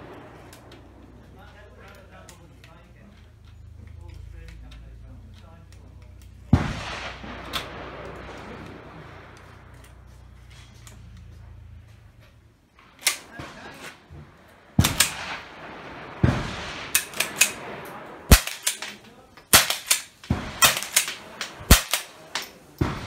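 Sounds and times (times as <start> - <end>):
rifle shots cracking: 0.0 - 2.4, 6.2 - 11.2, 12.8 - 23.0.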